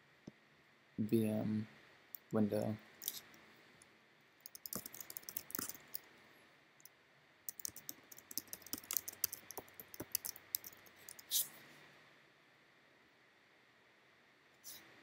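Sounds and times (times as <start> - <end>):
computer keyboard typing: 4.4 - 6.1, 7.5 - 11.3.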